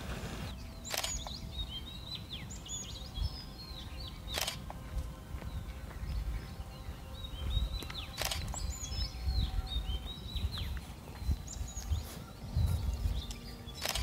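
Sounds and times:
birds chirping: 0.0s - 14.0s
low rumbling background: 0.0s - 14.0s
sharp click: 0.9s - 1.4s.

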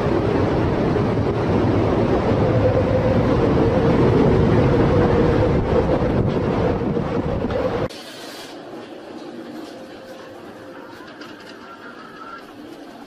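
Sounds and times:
wind blasting microphone: 0.0s - 7.9s.

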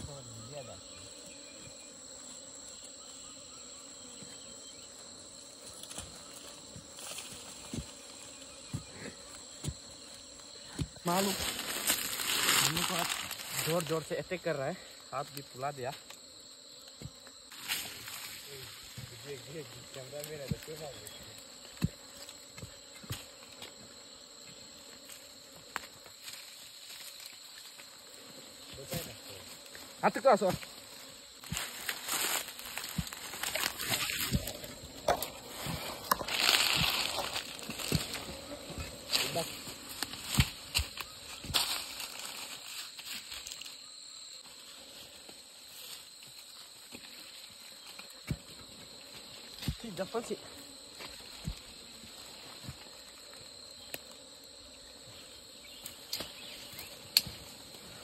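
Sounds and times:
high-pitched insect drone: 0.0s - 58.0s.

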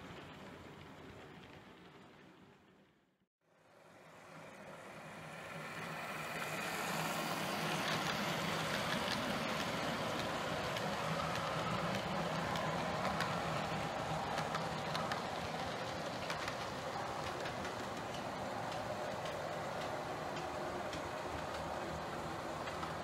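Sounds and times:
model train running drone: 3.5s - 23.0s
wagon wheels clicking on track: 6.0s - 23.0s.

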